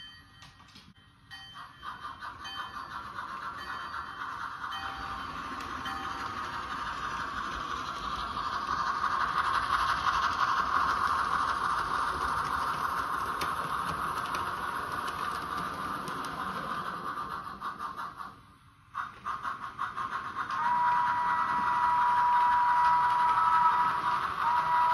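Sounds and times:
model train wheels and motor rumbling: 0.0s - 24.9s.

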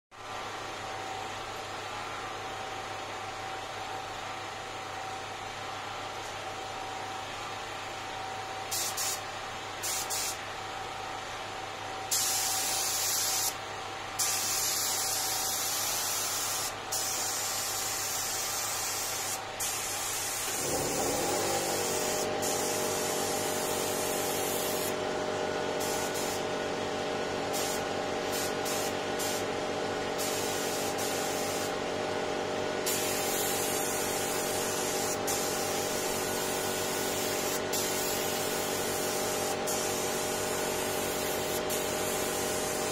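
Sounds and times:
spray gun hissing in bursts: 8.7s - 9.2s, 9.8s - 10.4s, 12.1s - 13.6s, 14.2s - 25.1s, 25.7s - 26.5s, 27.4s - 29.6s, 30.2s - 31.8s, 32.8s - 42.9s
air compressor motor humming: 14.2s - 42.9s.

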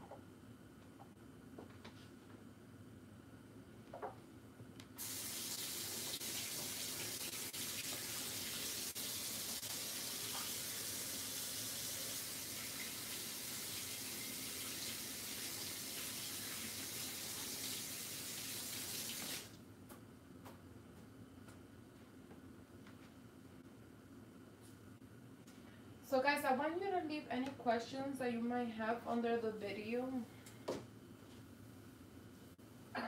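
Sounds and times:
tap water running: 5.0s - 19.6s.

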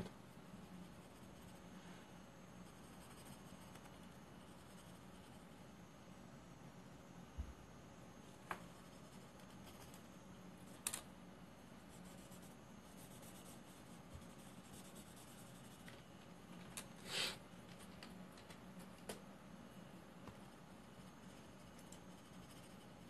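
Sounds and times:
pencil scratching on paper: 0.6s - 1.7s, 2.6s - 5.5s, 8.7s - 10.0s, 11.8s - 15.9s, 20.9s - 23.0s.

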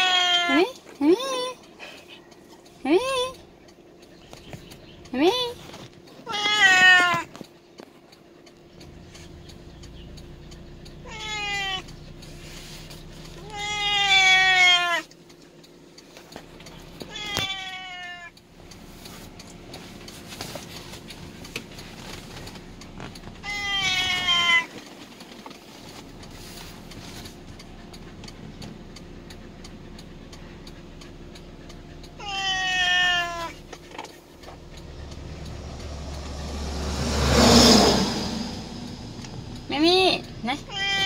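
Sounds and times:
cat meowing: 0.0s - 1.6s, 6.2s - 7.3s, 11.0s - 11.9s, 13.4s - 15.1s, 17.1s - 18.4s, 23.4s - 24.7s, 32.2s - 33.6s, 40.5s - 41.0s
car cabin hum: 18.4s - 41.0s.

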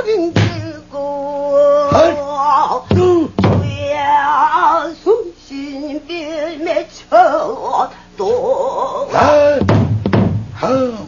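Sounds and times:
woman singing with vibrato: 0.0s - 9.7s
barrel drum strokes: 2.9s - 3.9s, 9.2s - 10.6s.

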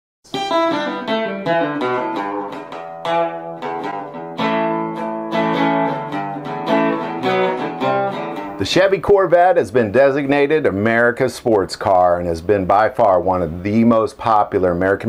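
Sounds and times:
acoustic guitar music: 0.3s - 11.1s.

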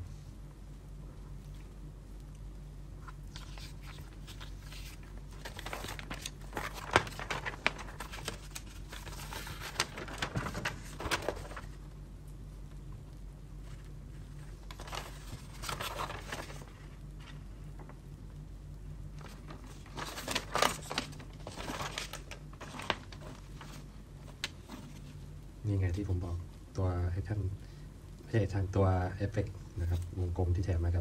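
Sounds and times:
paper rustling and crinkling: 3.0s - 11.8s, 13.6s - 18.0s, 19.1s - 25.3s.

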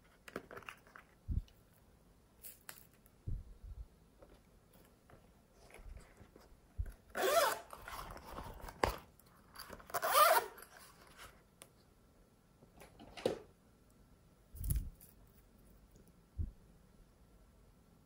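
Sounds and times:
zipper rasping open: 7.1s - 8.5s, 9.9s - 10.7s.

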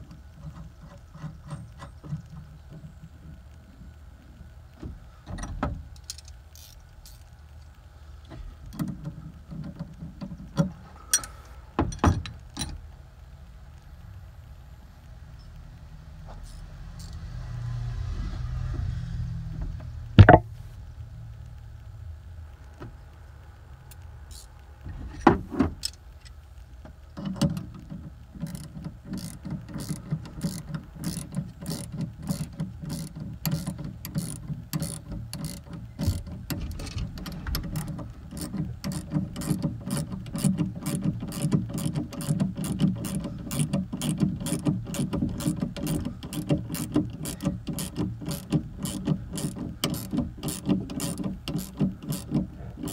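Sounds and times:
ratcheting wrench clicking: 6.0s - 7.2s, 27.2s - 52.9s.

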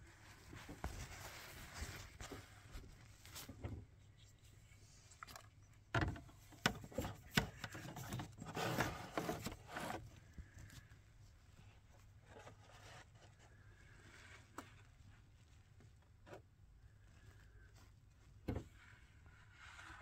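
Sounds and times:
handling knocks and taps: 5.3s - 9.6s.

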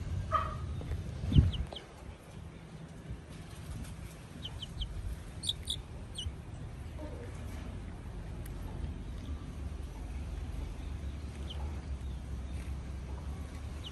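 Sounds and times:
chick peeping: 0.3s - 1.9s, 4.3s - 6.4s, 10.6s - 13.9s.

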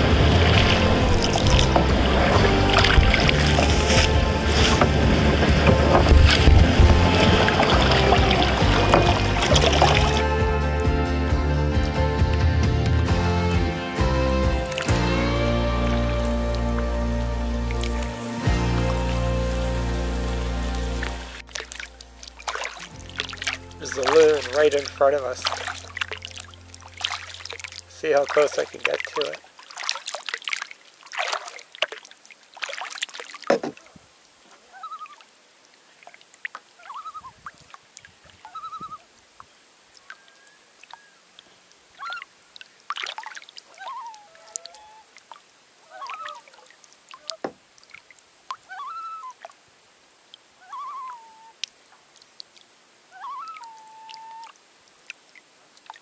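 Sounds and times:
paddle strokes splashing: 0.0s - 10.4s, 14.6s - 49.6s
trilling bird calls: 34.7s - 35.3s, 36.8s - 37.4s, 38.4s - 39.1s, 40.0s - 42.4s, 43.7s - 45.1s, 45.9s - 47.5s, 48.6s - 49.4s, 50.6s - 51.6s, 53.1s - 54.6s.

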